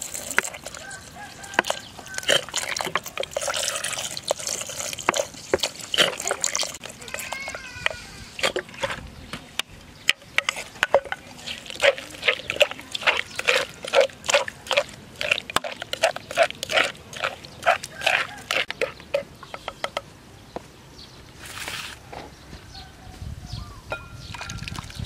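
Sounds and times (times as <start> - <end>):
pestle pounding wet paste: 0.0 - 9.0, 10.1 - 20.0.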